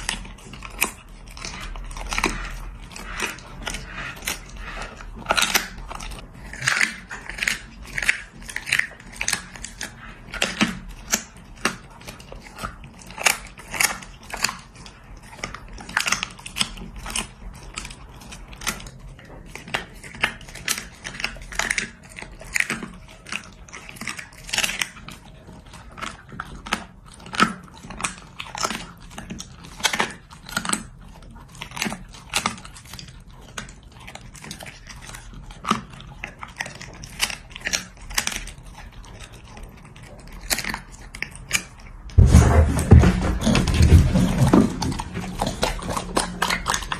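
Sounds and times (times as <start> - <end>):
dog crunching and chewing food: 0.0 - 46.9.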